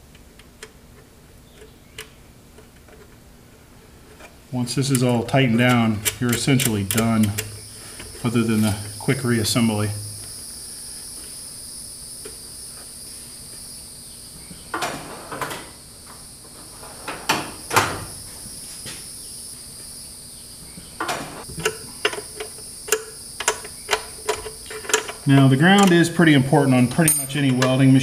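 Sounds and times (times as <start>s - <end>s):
steady high hiss: 2.1s - 28.0s
metal drawers opening and shutting: 14.7s - 15.8s, 16.5s - 18.2s, 21.0s - 21.8s
small metallic clicks and taps: 21.6s - 25.2s.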